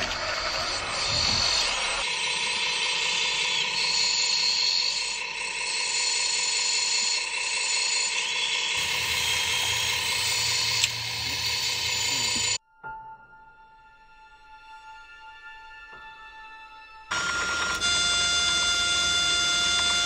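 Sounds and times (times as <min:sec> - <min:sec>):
small electric motors whining: 0:00.0 - 0:12.6, 0:17.1 - 0:20.0.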